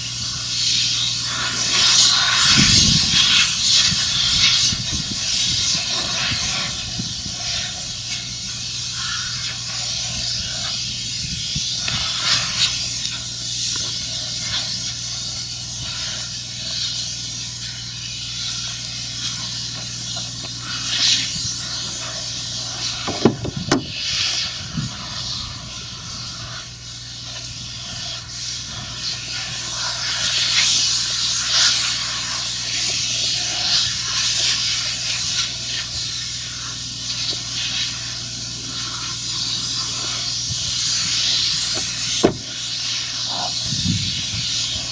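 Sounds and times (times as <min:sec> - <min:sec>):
loud hiss: 0:00.0 - 0:44.9
sharp knock: 0:42.2 - 0:42.5.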